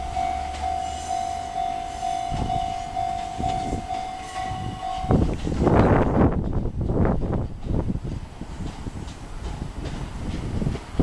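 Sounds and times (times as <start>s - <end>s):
level crossing alarm ringing: 0.0s - 5.3s
electric train rumbling: 0.0s - 11.0s
wheel clacks over rail joints: 2.3s - 11.0s.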